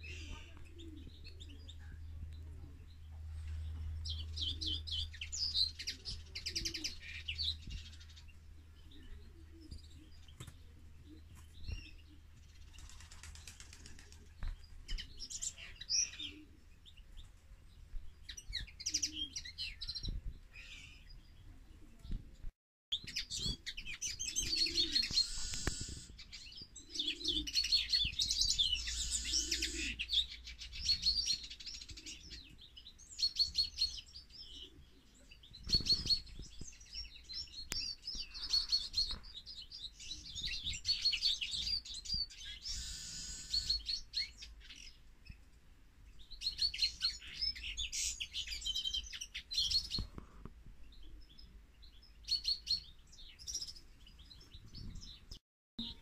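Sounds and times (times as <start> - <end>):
finches twittering: 24.8 - 26.1.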